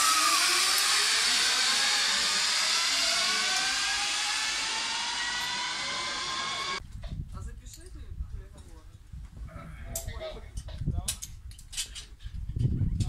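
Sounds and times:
zipline trolleys whirring on cables: 0.0 - 6.8.

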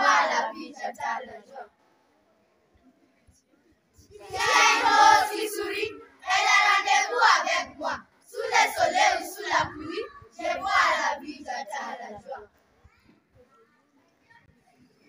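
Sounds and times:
children reciting in unison: 0.0 - 1.7, 4.0 - 12.5.

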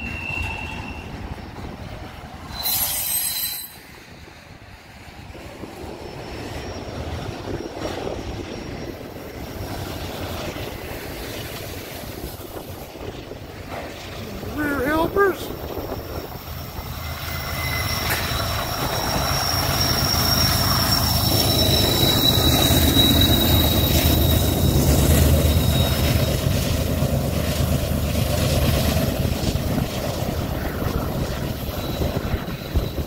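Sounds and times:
thin high squeal: 2.5 - 4.0, 6.0 - 9.3, 15.8 - 26.6, 31.6 - 33.0
diesel locomotive rumble: 5.0 - 33.0.

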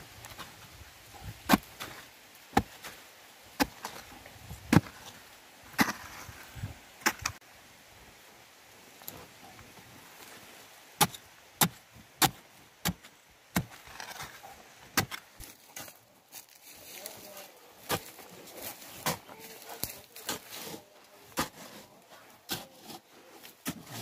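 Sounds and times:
digging tool chopping hard earth: 11.0 - 14.4, 23.6 - 24.0.

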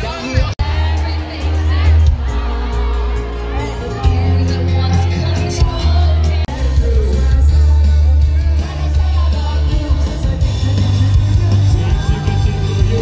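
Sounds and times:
heavy bass line: 0.0 - 13.0
live band playing amplified music: 0.0 - 13.0
people singing: 0.0 - 13.0.

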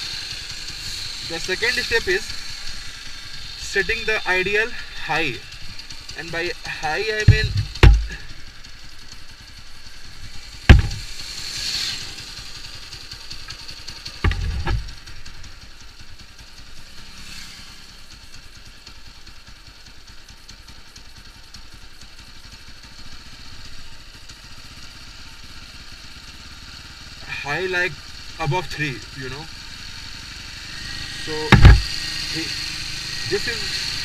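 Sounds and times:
motorcycle engine idling: 0.0 - 34.0
dull thumps: 7.1 - 8.4, 10.7 - 11.2, 14.2 - 15.2, 31.4 - 32.0.

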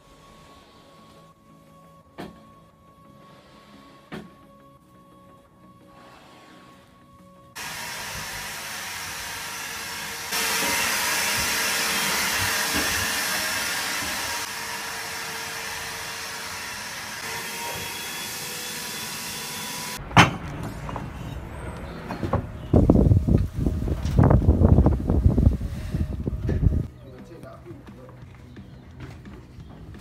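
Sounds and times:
loud rushing hiss: 7.6 - 20.0.

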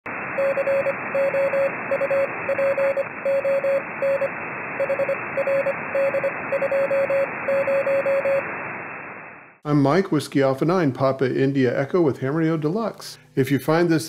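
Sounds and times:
radio static hiss: 0.1 - 10.1
morse code beeps: 0.4 - 8.5.

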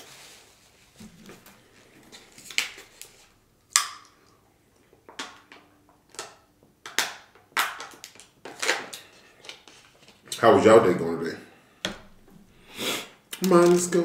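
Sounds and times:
plastic bottle snap: 3.7 - 4.1.

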